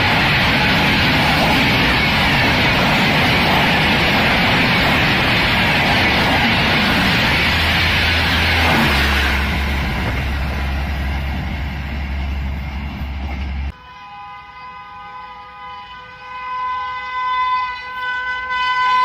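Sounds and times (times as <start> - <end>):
locomotive horn blast: 13.7 - 19.0.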